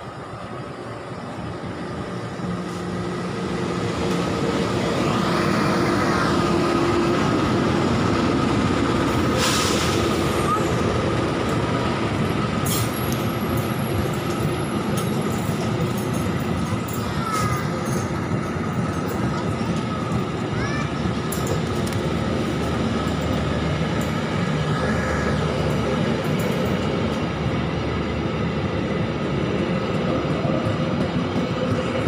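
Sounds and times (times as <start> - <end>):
passenger train rumbling past: 0.0 - 32.0
train wheels clicking: 6.2 - 28.1.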